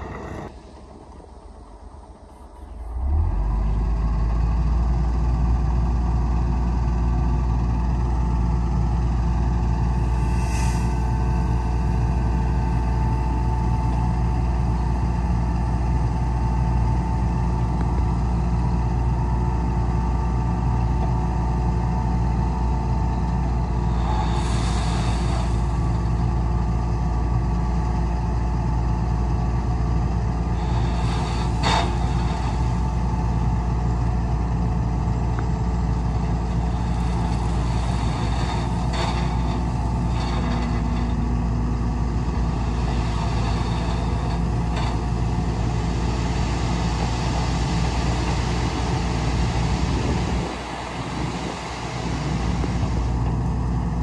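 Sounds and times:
heavy diesel engine running: 0.0 - 54.0
short hissing or clattering: 10.0 - 11.2, 23.9 - 25.9.

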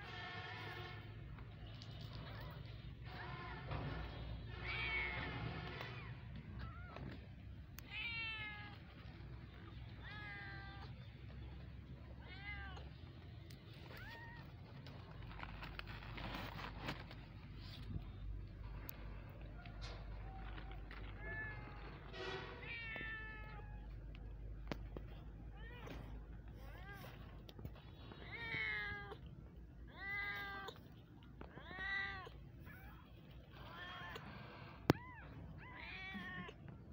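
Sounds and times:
kittens meowing: 29.9 - 36.7.

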